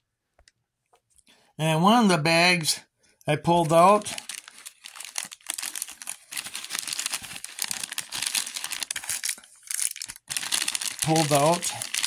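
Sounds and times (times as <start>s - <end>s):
plastic wrappers crinkling: 3.6s - 12.0s.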